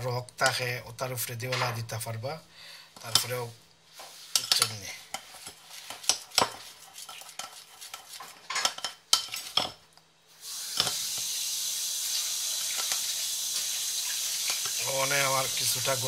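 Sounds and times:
teaspoon scraping ceramic bowl: 4.1s - 9.7s
steady hiss: 10.3s - 16.0s.

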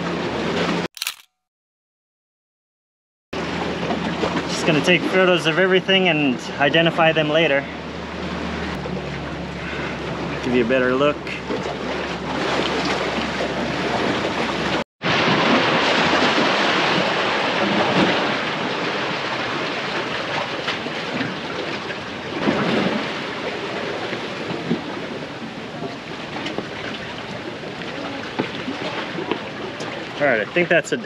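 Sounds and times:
surf washing against rocks: 10.5s - 31.0s.

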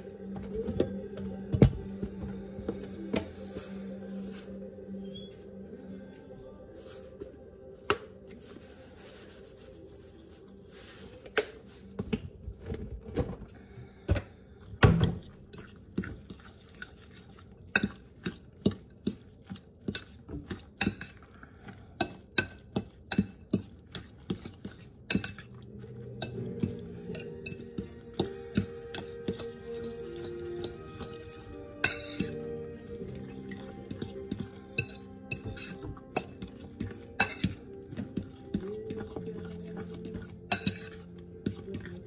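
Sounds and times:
utensil clinking glass bowl: 15.2s - 42.0s.

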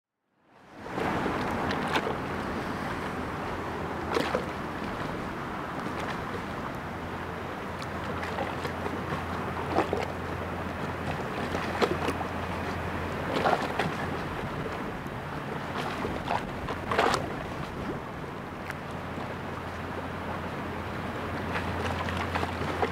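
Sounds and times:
diesel engine drone: 0.5s - 22.9s
bow wave rushing: 0.6s - 18.6s.

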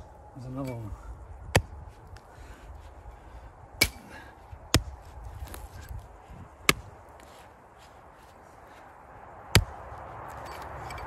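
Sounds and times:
hand tool chopping tree stump: 3.8s - 6.0s, 9.5s - 9.8s.

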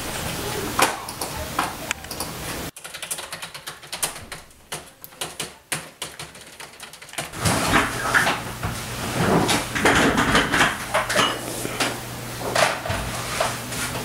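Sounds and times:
computer keyboard typing: 2.0s - 7.4s.

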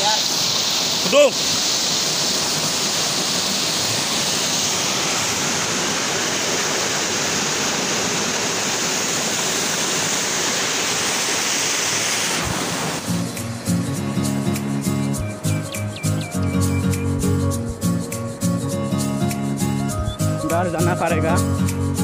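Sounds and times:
white water rushing over rocks: 0.0s - 16.3s.

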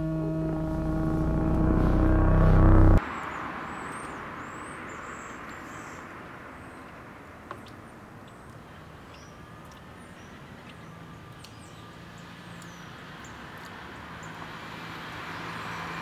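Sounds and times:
distant traffic hiss: 0.0s - 16.0s
small birds chirping: 3.2s - 14.4s.

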